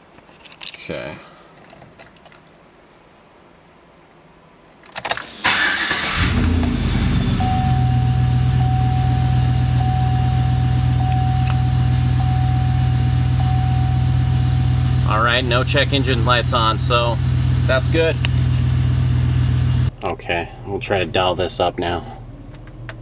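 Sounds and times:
engine idling: 5.5 - 19.9
chime tone: 7.2 - 15.0
clicks: 11.0 - 11.7.

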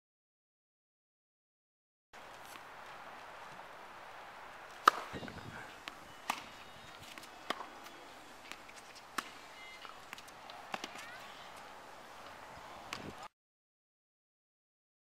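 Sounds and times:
racket striking tennis ball: 4.6 - 13.2
tennis ball bouncing on court: 4.7 - 13.1.

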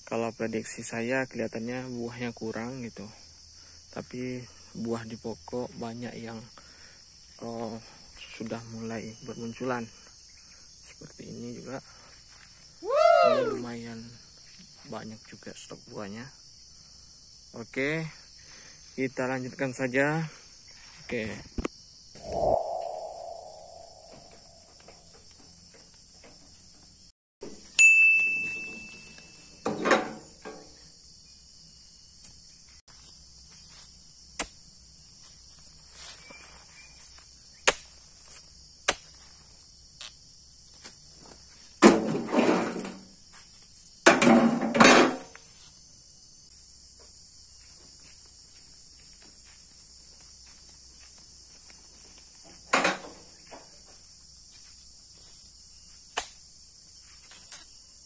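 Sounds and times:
insects buzzing: 0.0 - 27.6, 28.5 - 58.0
metallic ding: 27.8 - 29.7.

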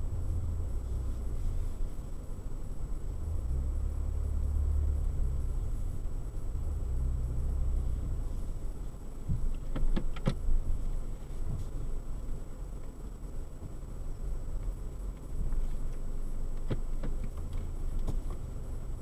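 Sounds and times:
faint high whine: 0.0 - 9.6
car driving rumble: 0.0 - 19.0.

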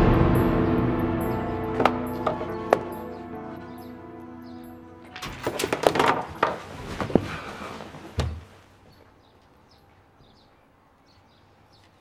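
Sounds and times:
knocks and clatters: 5.1 - 7.3
rustling of bedding: 5.2 - 9.6.

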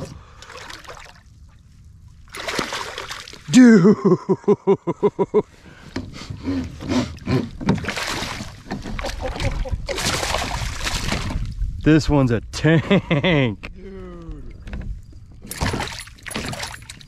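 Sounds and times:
water splashing: 0.0 - 1.5, 2.2 - 3.7, 6.8 - 11.6, 15.5 - 17.0
fish thrashing in net: 7.8 - 11.4.

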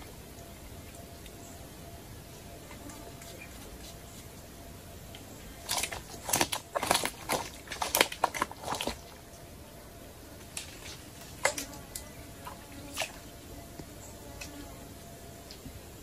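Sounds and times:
wet clicks and splashes on water: 5.2 - 9.0, 10.5 - 12.0.

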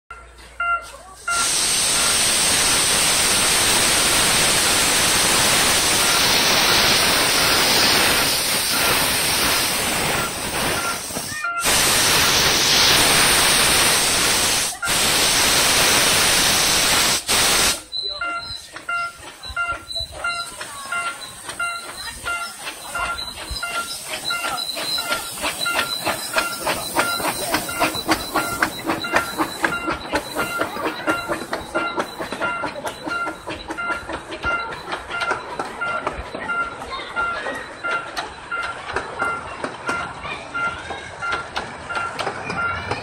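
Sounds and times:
level-crossing warning bell: 0.1 - 1.5, 10.0 - 11.8, 17.8 - 43.0
steam locomotive hissing: 0.4 - 43.0.

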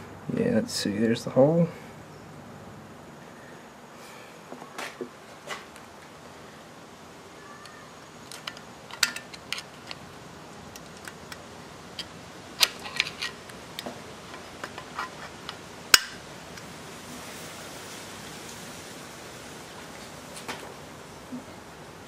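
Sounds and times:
screwdriver metallic clicks: 8.3 - 10.0.

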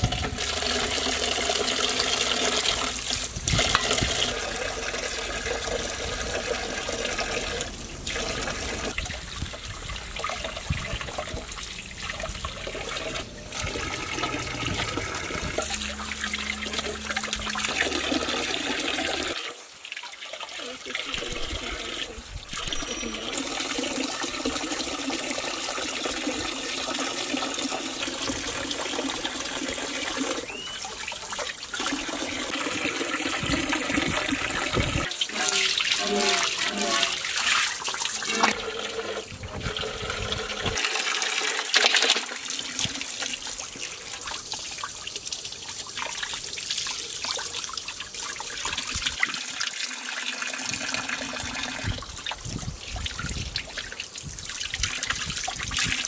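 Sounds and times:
tap water splashing into basin: 36.7 - 56.0.

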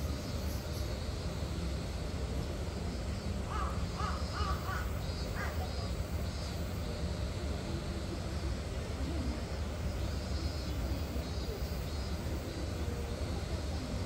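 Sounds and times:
crow cawing: 3.5 - 5.6.

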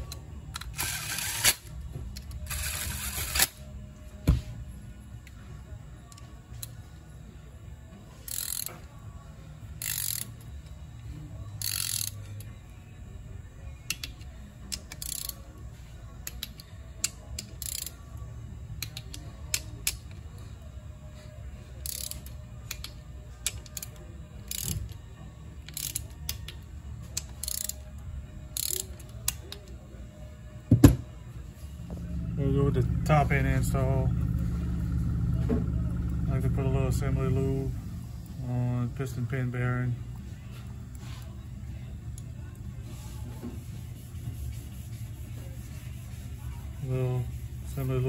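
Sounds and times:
hand ratchet clicking: 8.2 - 8.8, 9.8 - 10.4, 11.6 - 12.2, 13.9 - 15.4, 16.2 - 18.0, 21.8 - 25.0, 25.6 - 26.6, 27.2 - 27.8, 28.6 - 29.7.

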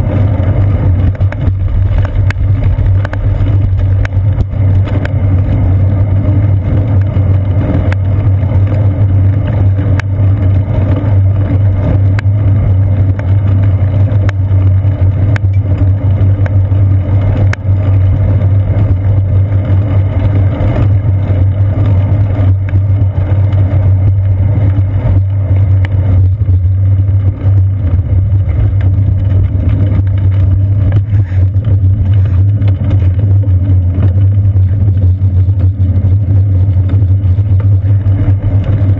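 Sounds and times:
wind buffeting: 0.0 - 8.2
bicycle tyre rumble: 0.0 - 38.9.

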